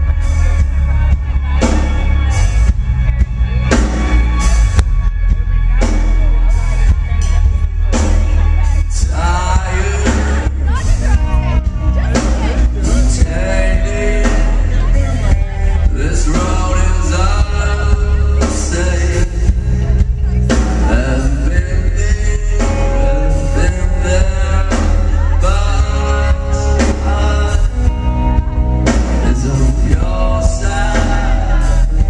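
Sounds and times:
live rock band playing: 0.0 - 32.0
man singing lead vocals: 5.2 - 32.0.

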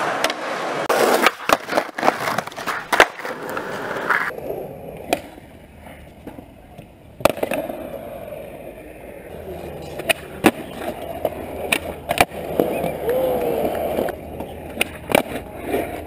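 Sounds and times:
skateboard clacking on ground: 0.0 - 8.3, 9.3 - 16.0
skateboard wheels rolling on concrete: 0.0 - 16.0.

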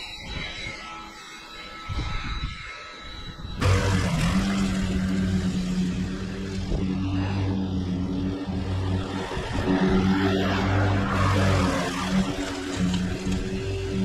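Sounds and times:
lawn mower engine running: 3.6 - 14.0.

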